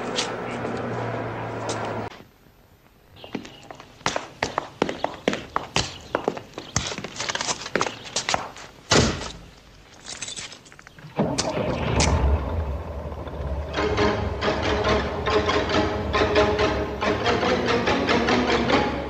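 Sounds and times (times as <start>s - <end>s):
low engine rumble: 0.0s - 2.1s, 11.0s - 17.8s
footsteps on pavement: 0.0s - 2.2s, 3.2s - 10.1s
music: 13.7s - 19.0s.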